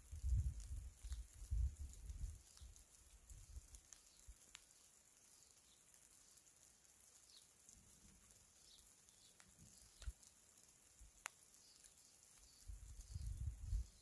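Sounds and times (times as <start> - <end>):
steady high hiss: 0.0 - 14.0
faint high chirps: 2.4 - 10.4, 11.2 - 14.0.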